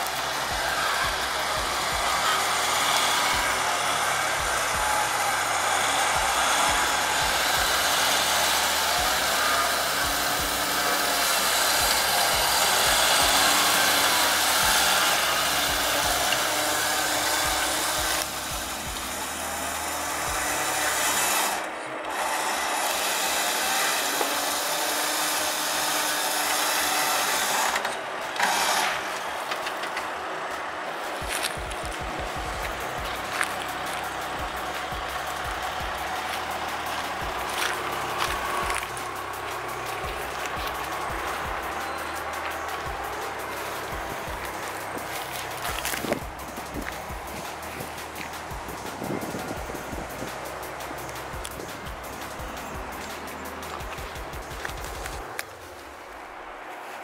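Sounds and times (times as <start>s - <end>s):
winch winding in cable: 0.0s - 30.1s.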